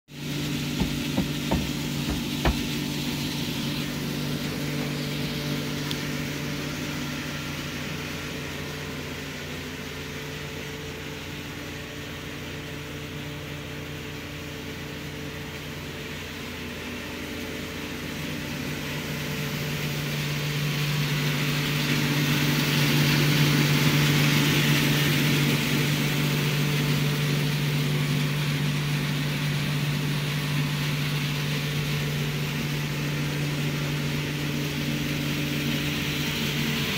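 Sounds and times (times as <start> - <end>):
grain mill humming: 0.1 - 36.9
grain pouring from chute: 0.2 - 36.9
sharp knocks: 0.8 - 2.8.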